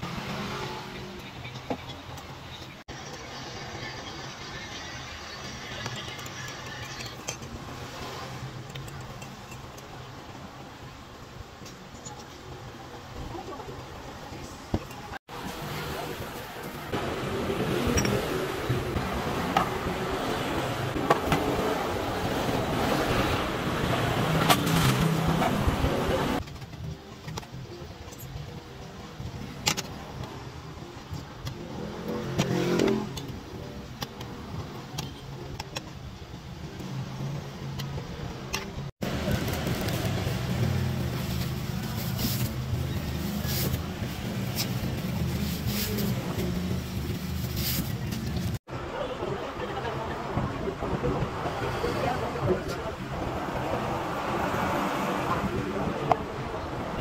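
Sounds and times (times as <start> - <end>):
street traffic passing: 0.0 - 57.0
plastic chairs and glassware clicking: 24.2 - 28.4.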